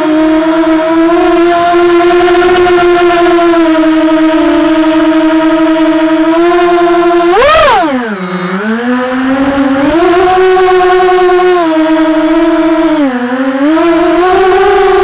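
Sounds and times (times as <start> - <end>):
drone motors whining: 0.0 - 15.0.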